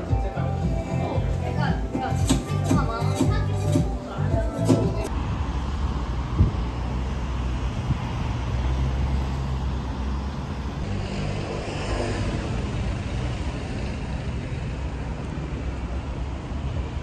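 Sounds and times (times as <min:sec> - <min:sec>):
traffic rumble: 0:00.0 - 0:17.0
vehicle passing: 0:05.0 - 0:17.0.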